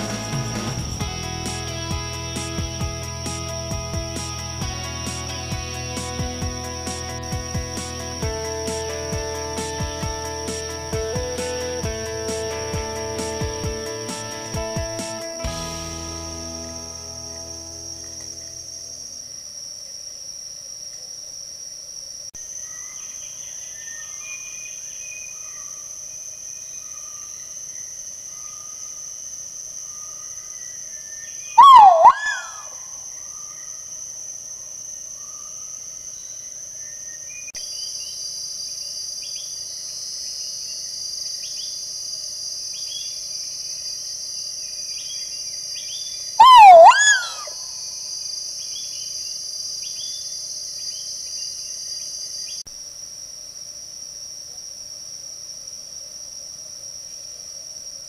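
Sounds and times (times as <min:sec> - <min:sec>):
forest insects droning: 0:00.0 - 0:58.0
small birds chirping: 0:30.0 - 0:32.8, 0:44.8 - 0:47.6
pheasant calling: 0:31.6 - 0:32.8, 0:46.4 - 0:47.6.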